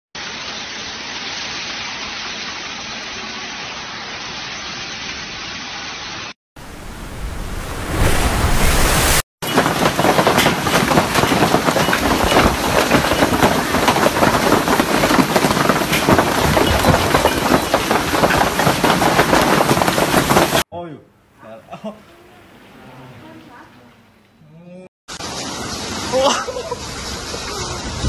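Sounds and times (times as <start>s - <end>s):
rushing noise: 6.6s - 11.2s
hailstones pelting the ground: 9.4s - 20.6s.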